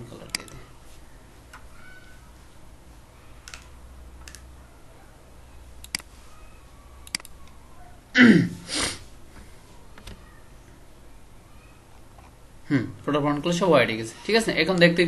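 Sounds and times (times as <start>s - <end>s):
computer mouse clicks: 0.2s - 0.6s, 3.4s - 4.5s, 5.8s - 6.1s, 7.0s - 7.6s
person breathing noises: 8.3s - 9.6s.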